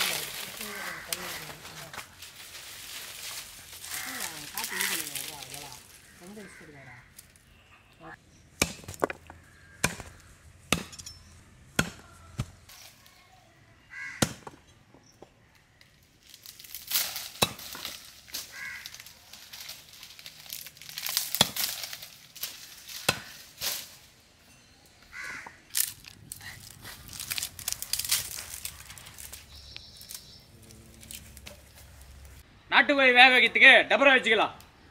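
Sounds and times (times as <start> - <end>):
chopping strikes: 8.6 - 11.1, 11.7 - 12.6.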